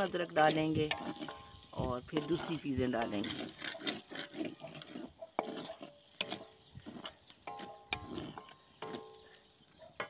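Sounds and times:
metal pan ringing: 0.0s - 3.2s, 7.4s - 9.5s
spatula knocking metal pan: 0.0s - 4.3s
faint sizzle: 0.0s - 10.0s
wooden spatula scraping pan: 0.0s - 10.0s.

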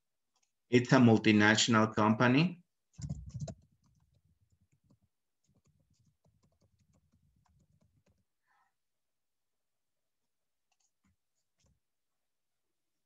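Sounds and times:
faint keyboard typing: 2.9s - 8.7s.

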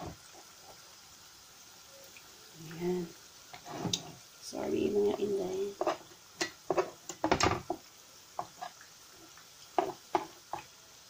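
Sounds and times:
utensil knocking against frying pan: 5.8s - 7.8s, 9.8s - 10.6s.

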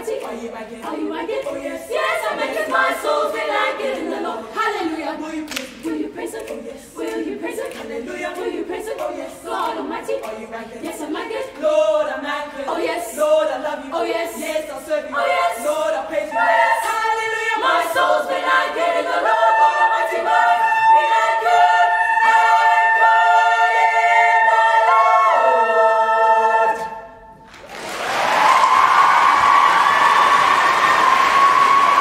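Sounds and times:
girls' choir singing a cappella: 0.0s - 27.4s
applause and cheering: 27.5s - 32.0s.

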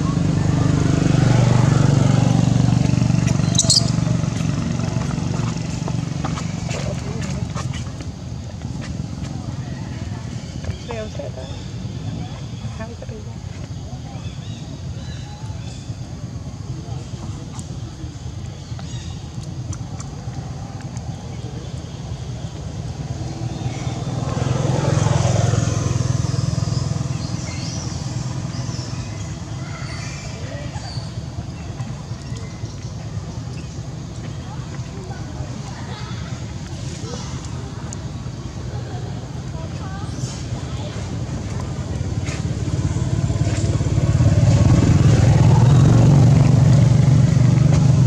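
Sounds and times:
vehicle engine passing by: 0.0s - 8.0s, 18.9s - 48.0s.

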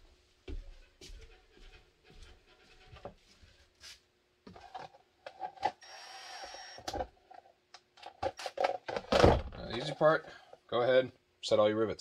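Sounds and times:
small motor whirring: 5.8s - 6.9s.

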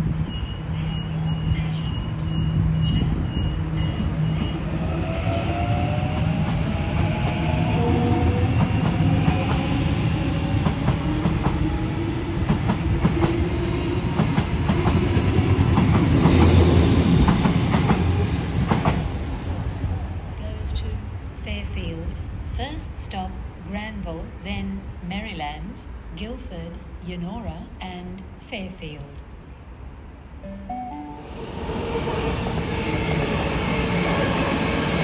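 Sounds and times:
high beeps: 0.2s - 4.7s.

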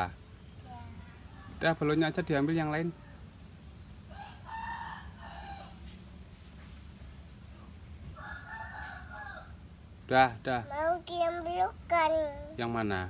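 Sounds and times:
rooster crowing: 4.1s - 5.8s, 8.2s - 9.6s.

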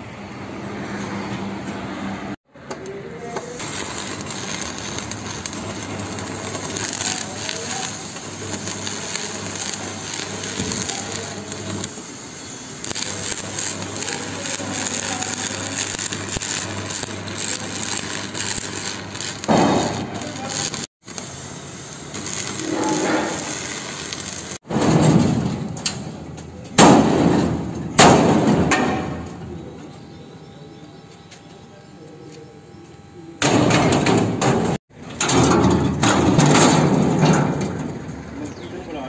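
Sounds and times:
welding arc crackling: 2.7s - 29.6s.

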